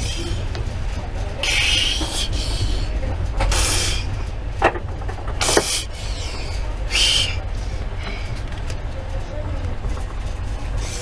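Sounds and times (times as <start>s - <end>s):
train rumble from inside: 0.0s - 11.0s.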